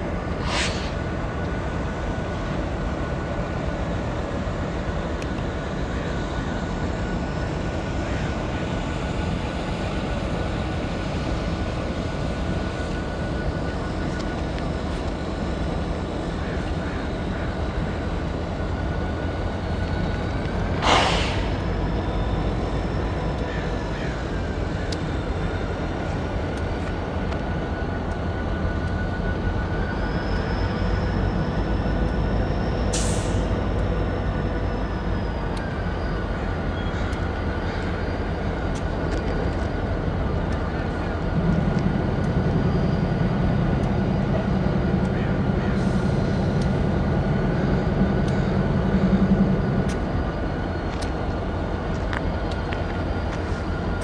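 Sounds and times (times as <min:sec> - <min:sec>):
diesel locomotive rumbling: 0:00.0 - 0:54.0
short sharp hiss: 0:00.4 - 0:01.0, 0:20.8 - 0:21.6.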